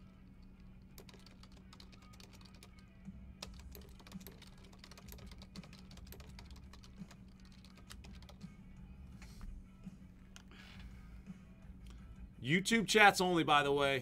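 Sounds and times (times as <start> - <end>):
low electrical hum: 0.0 - 14.0
keyboard typing: 0.8 - 2.8, 3.4 - 8.4.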